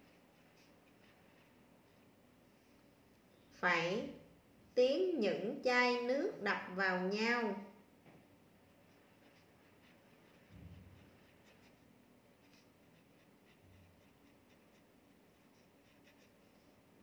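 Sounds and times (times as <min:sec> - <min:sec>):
pen scratching on paper: 0:00.0 - 0:01.6, 0:08.7 - 0:16.8.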